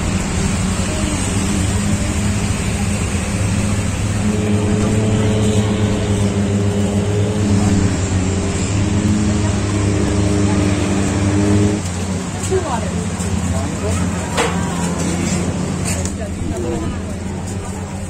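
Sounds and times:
higher tones: 0.0s - 11.8s
street traffic noise: 0.0s - 18.0s
vehicle engine humming: 0.0s - 18.0s.

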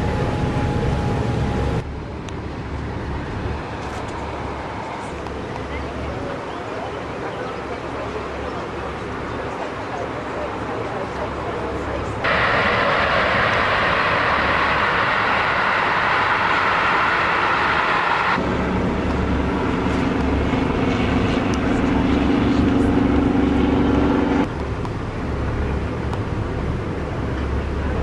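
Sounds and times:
ship engine droning hum: 0.0s - 28.0s
rushing noise: 12.2s - 24.5s.

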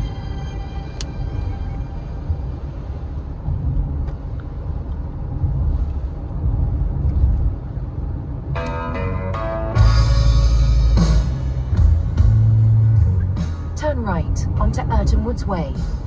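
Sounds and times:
music: 0.0s - 3.0s, 8.6s - 16.0s
road and engine rumble in car: 0.0s - 16.0s.

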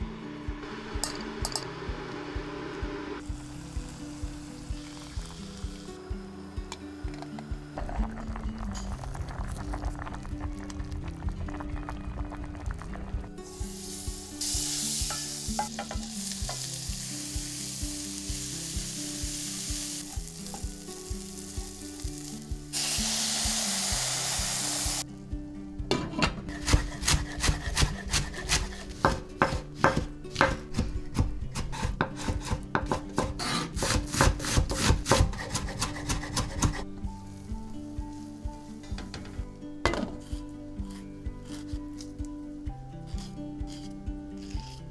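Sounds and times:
fat sizzling in pot: 3.2s - 6.1s, 7.8s - 25.1s, 34.5s - 39.2s.

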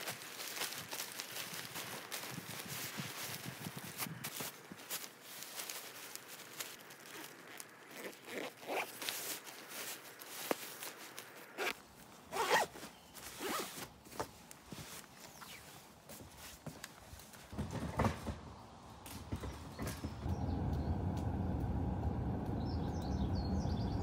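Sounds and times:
fabric rustling: 0.0s - 17.6s
zipper being pulled: 7.1s - 10.9s, 11.5s - 13.9s.

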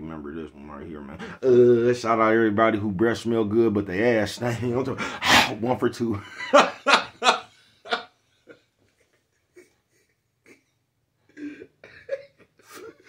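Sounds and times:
man laughing and wheezing: 6.2s - 13.0s.

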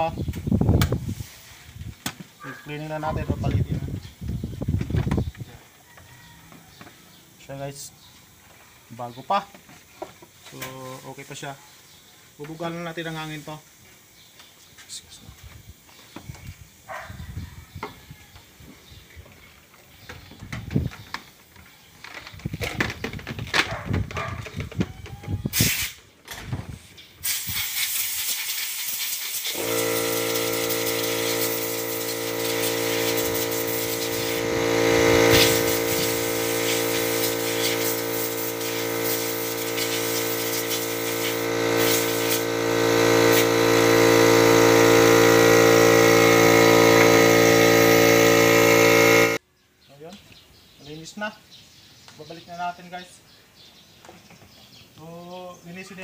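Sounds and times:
compressed air hissing from air gun: 0.7s - 2.4s, 25.5s - 26.1s, 27.2s - 49.4s
air compressor motor humming: 29.4s - 49.4s.

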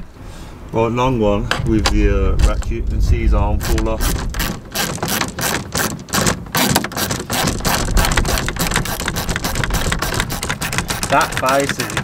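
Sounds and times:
wind rumble on microphone: 0.0s - 4.8s, 7.4s - 12.0s
hand ratchet clicking: 3.6s - 12.0s.

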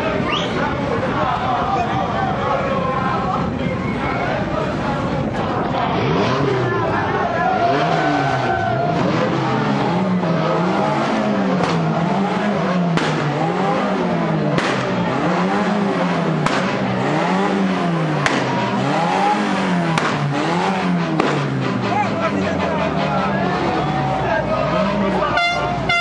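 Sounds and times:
sharp cracks: 12.9s - 13.5s, 14.4s - 15.0s, 16.4s - 17.0s, 18.1s - 18.8s, 19.4s - 21.6s.

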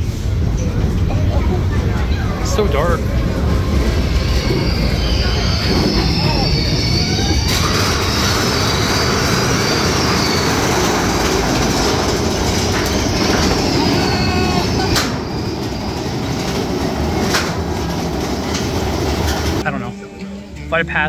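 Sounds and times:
vehicle rumble and rattle: 0.0s - 19.7s
faint high squeal: 3.8s - 16.1s.

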